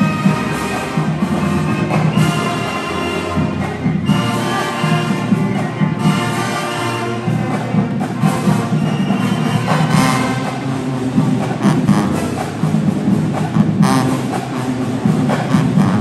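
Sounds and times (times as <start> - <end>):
marching band brass chords: 0.0 - 16.0
drum hits: 7.3 - 16.0.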